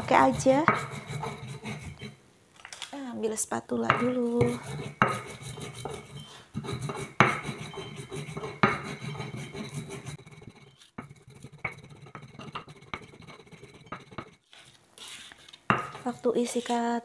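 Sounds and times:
stone pestle grinding seeds: 0:00.0 - 0:02.2, 0:03.9 - 0:16.8
stone knocking on stone: 0:07.1 - 0:07.5, 0:08.4 - 0:08.9, 0:15.7 - 0:16.0.

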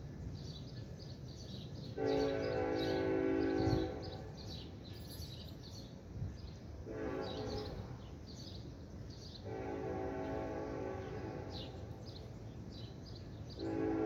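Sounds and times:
birds chirping: 0:00.2 - 0:14.0
train horn blasts: 0:01.9 - 0:04.5, 0:06.8 - 0:08.0, 0:09.4 - 0:12.0, 0:13.6 - 0:14.0.

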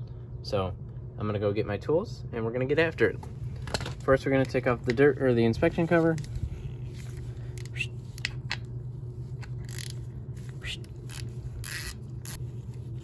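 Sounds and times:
steady low hum: 0:00.0 - 0:13.0
hand ratchet clicking: 0:09.6 - 0:10.0, 0:10.8 - 0:12.4.

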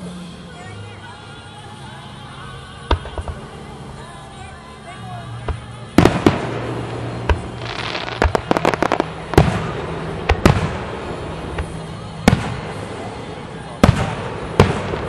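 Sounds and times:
crackling pops: 0:02.9 - 0:03.5, 0:05.5 - 0:12.8
firework hiss: 0:05.0 - 0:15.0
firework shells bursting: 0:05.5 - 0:13.0.

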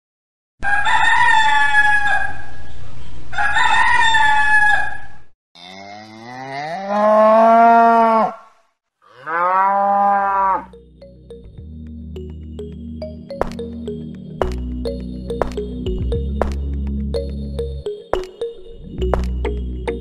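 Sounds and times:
rooster crowing: 0:00.6 - 0:02.5, 0:03.3 - 0:05.2, 0:09.2 - 0:10.7
cow mooing: 0:05.6 - 0:10.8.

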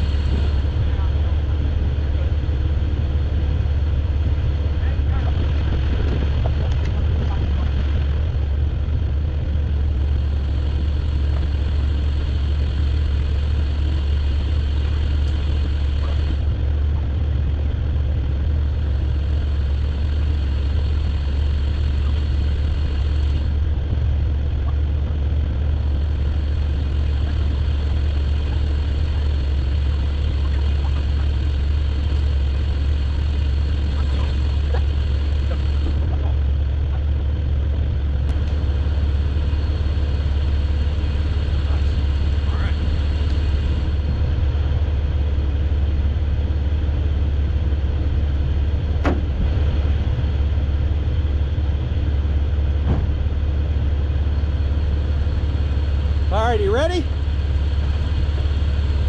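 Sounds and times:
vehicle engine idling: 0:00.0 - 0:59.0.

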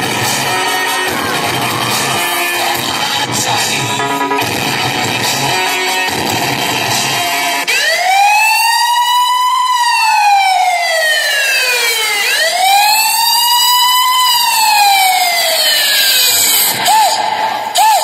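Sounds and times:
dance music: 0:00.0 - 0:08.0
siren wail sound effect: 0:04.0 - 0:05.1.

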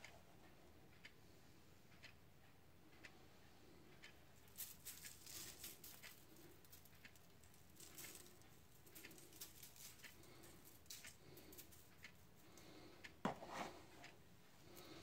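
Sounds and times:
salt grains pattering: 0:04.4 - 0:12.0.

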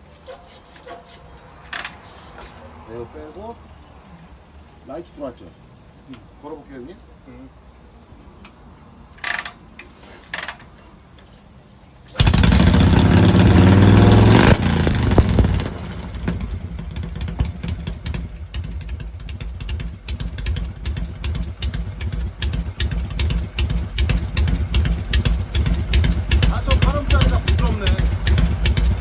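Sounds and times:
motorcycle engine revving and idling: 0:12.1 - 0:29.0.

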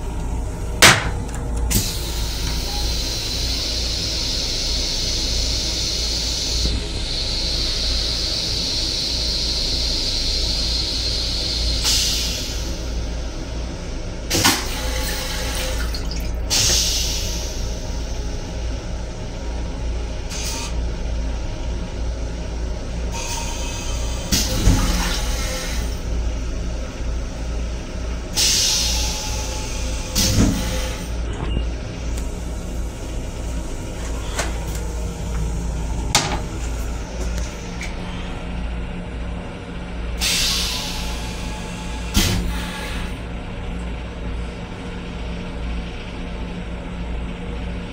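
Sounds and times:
train rumble: 0:00.0 - 0:07.9, 0:10.5 - 0:47.8
toilet flushing: 0:14.3 - 0:18.0, 0:23.2 - 0:26.1, 0:32.2 - 0:38.1.

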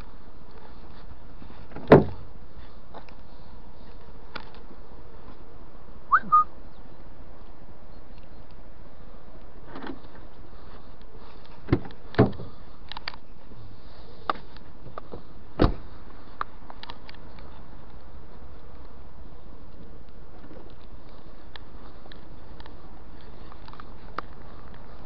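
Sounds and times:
car doors clicking and knocking: 0:01.7 - 0:02.2
short high chirp: 0:06.1 - 0:06.5.

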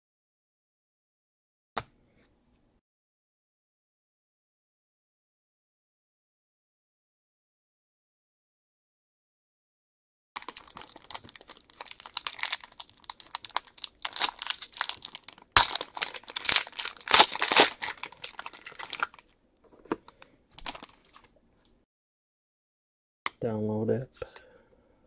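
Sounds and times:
foil wrapper tearing: 0:10.4 - 0:19.2, 0:20.6 - 0:21.2
foil wrapper crinkling: 0:10.4 - 0:19.3, 0:20.2 - 0:21.3.

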